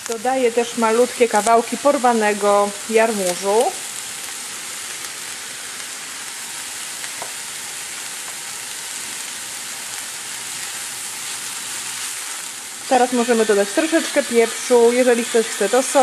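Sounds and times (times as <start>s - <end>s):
vegetables sizzling in a pan: 0.0s - 16.0s.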